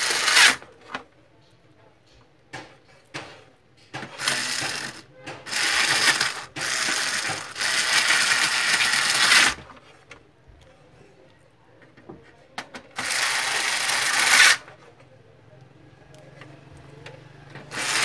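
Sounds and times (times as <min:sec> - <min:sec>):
screwdriver driving screws: 0:04.1 - 0:09.6, 0:13.0 - 0:14.6, 0:17.7 - 0:18.0.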